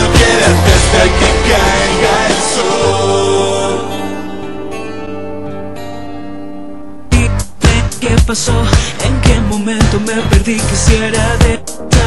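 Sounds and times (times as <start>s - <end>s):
instrumental pop-rock music: 0.0s - 12.0s.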